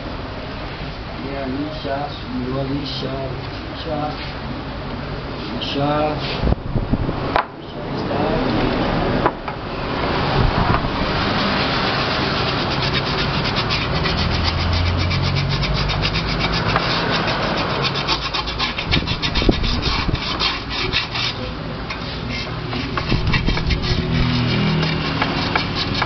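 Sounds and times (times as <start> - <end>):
sandpaper rubbing on metal: 11.2 - 26.0.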